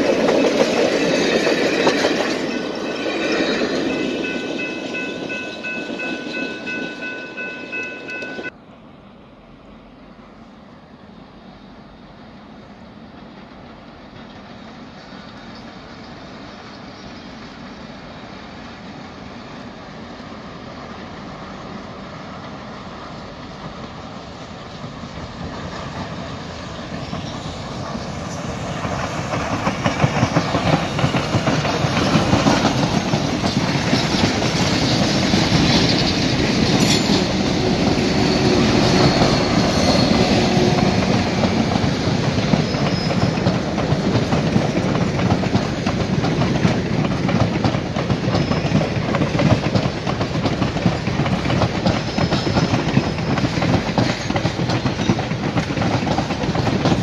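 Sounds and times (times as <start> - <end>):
train wheels clattering over rails: 0.0 - 8.5, 18.8 - 57.0
steam locomotive passing: 0.0 - 57.0.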